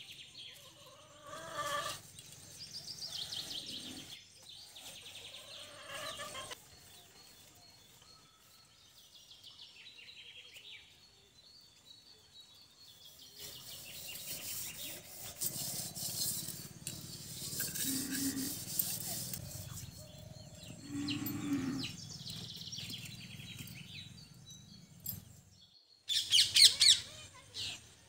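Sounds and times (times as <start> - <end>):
birds chirping: 0.0 - 28.0
hands scraping ash: 13.4 - 20.2
rubbing wet mud on clay pot: 13.4 - 20.2.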